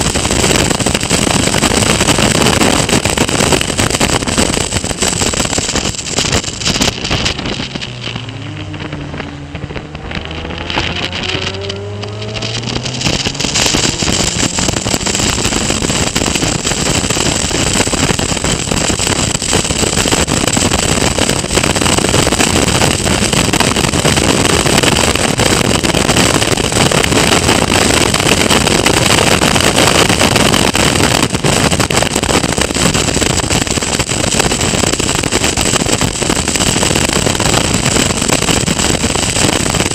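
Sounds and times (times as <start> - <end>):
race car engine: 0.0 - 29.1
wind rushing on microphone: 0.0 - 39.9.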